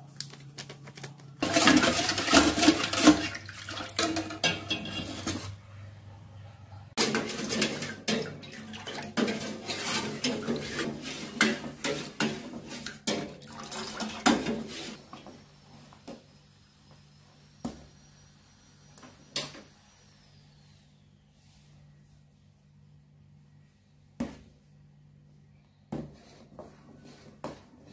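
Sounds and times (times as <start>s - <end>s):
ladle stirring in metal pot: 1.4s - 5.6s, 7.0s - 15.1s
liquid sloshing: 1.4s - 5.6s.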